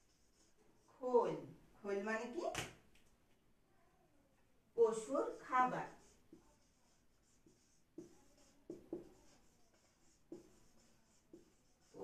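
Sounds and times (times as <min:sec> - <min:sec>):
marker pen writing on whiteboard: 0:00.0 - 0:01.4, 0:04.9 - 0:12.0.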